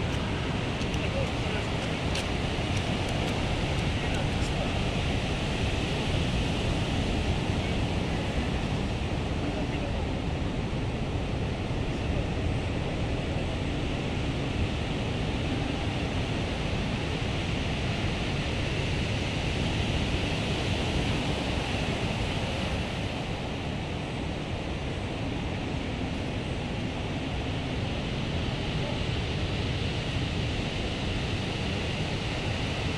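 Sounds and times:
surf breaking on beach: 0.0s - 9.3s
wind rumbling on microphone: 0.0s - 32.9s.

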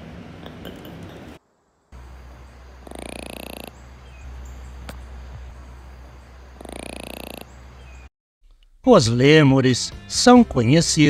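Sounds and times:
steady low hum: 0.0s - 8.1s
lemur calling: 2.0s - 8.1s.

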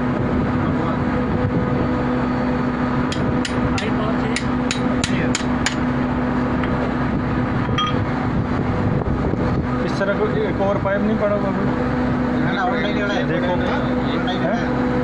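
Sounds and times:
low machinery hum: 0.0s - 15.0s
hammer striking metal: 3.1s - 5.9s.

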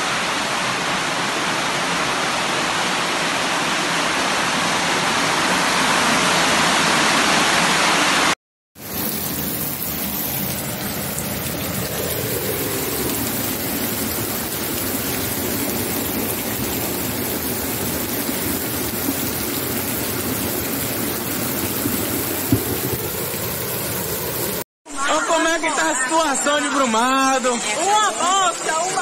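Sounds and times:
heavy rain pouring: 0.0s - 24.7s
floodwater running over pavement: 8.8s - 24.7s.

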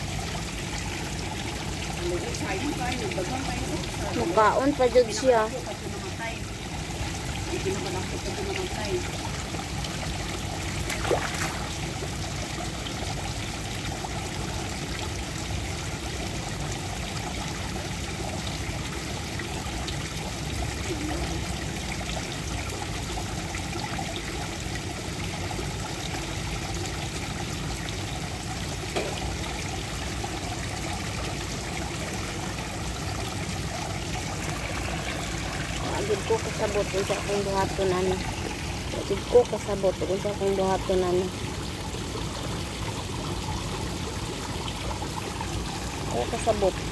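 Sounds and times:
trickle of running water: 0.0s - 46.9s.

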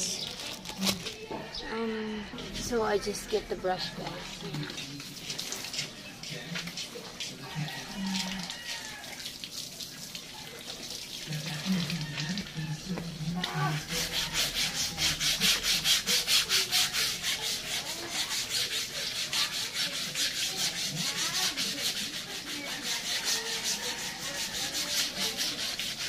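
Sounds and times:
brush scrubbing: 13.0s - 26.0s.

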